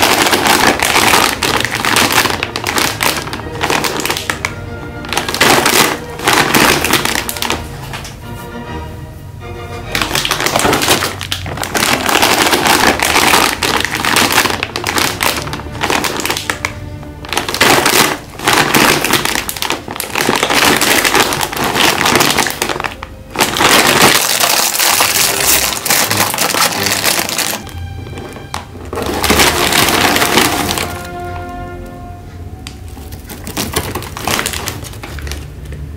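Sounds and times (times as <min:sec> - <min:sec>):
plastic snack bags crinkling: 0:00.0 - 0:08.2, 0:09.8 - 0:31.8, 0:32.7 - 0:35.9
soft background music: 0:00.0 - 0:35.9.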